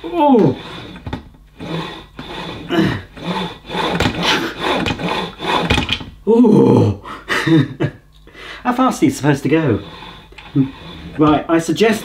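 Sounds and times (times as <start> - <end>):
carriage sliding on metal rail: 0.0 - 6.1, 9.2 - 12.0.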